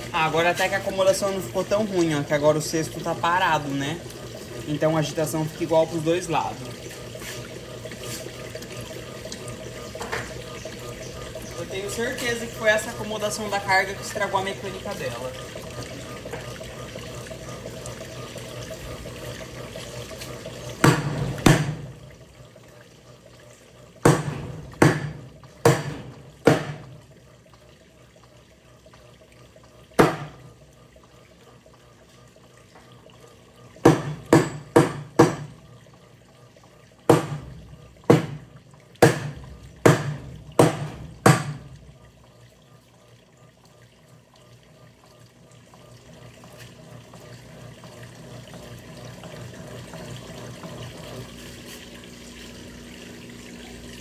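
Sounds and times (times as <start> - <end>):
water sloshing in washing machine: 0.0 - 54.0
sharp knocks: 24.0 - 26.8, 30.0 - 30.4, 33.8 - 35.6, 37.1 - 37.5, 38.1 - 41.7.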